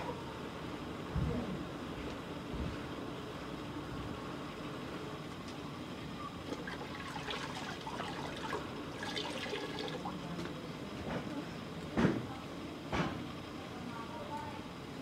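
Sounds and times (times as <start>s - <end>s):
steady background noise: 0.0s - 15.0s
water trickling and splashing: 6.4s - 10.6s.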